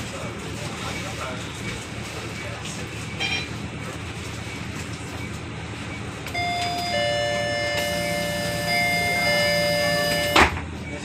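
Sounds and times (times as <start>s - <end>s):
bus cabin hum: 0.0s - 11.0s
short high beep: 6.4s - 10.4s
electronic door chime: 6.4s - 10.5s.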